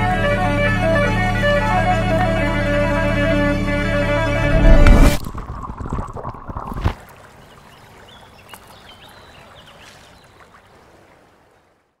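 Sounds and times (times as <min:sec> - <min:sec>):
loud music hit: 0:04.3 - 0:05.2
water trickling and lapping: 0:04.9 - 0:12.0.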